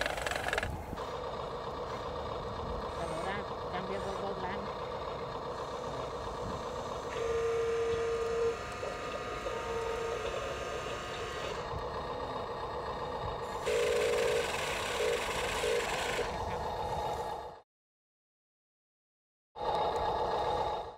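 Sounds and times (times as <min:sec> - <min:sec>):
toy truck motor whirring: 0:00.0 - 0:01.2, 0:05.5 - 0:11.8, 0:13.4 - 0:17.6.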